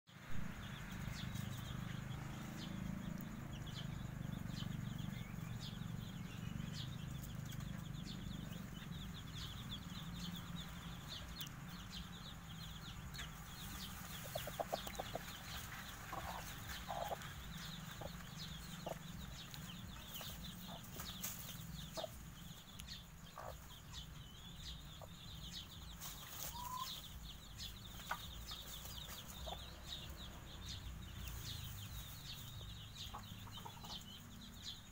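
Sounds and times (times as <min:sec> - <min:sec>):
chicks peeping: 0:00.2 - 0:34.9
low background rumble: 0:00.4 - 0:26.0
chicken clucking: 0:13.0 - 0:22.5, 0:23.2 - 0:24.2, 0:24.8 - 0:30.1, 0:31.2 - 0:34.3.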